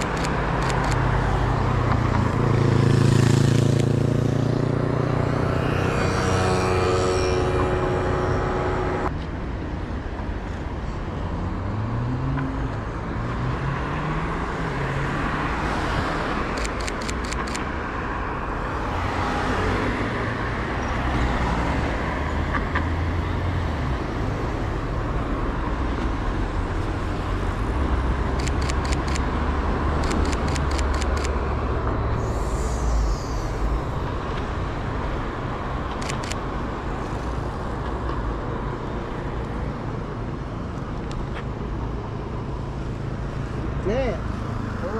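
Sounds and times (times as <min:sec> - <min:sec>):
vehicles passing: 0:00.0 - 0:44.9
engine rising in pitch: 0:04.8 - 0:09.1.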